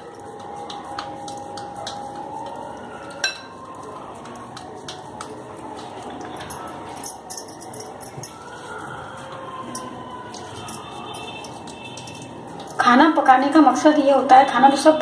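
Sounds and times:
hand clinking glass bowl: 0.0 - 3.6, 6.0 - 8.6, 9.6 - 13.4
bangles clinking: 6.0 - 8.8, 9.6 - 13.5.

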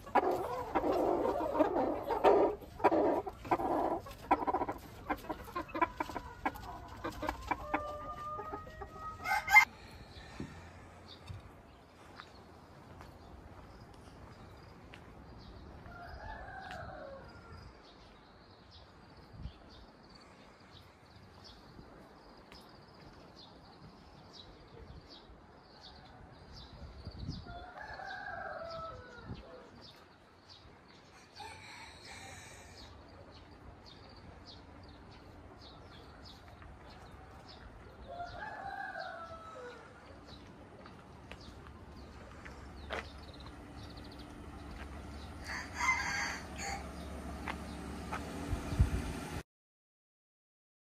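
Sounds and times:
rooster crowing: 7.5 - 9.8, 15.8 - 17.6, 31.2 - 32.9, 38.1 - 40.0, 45.4 - 47.1.

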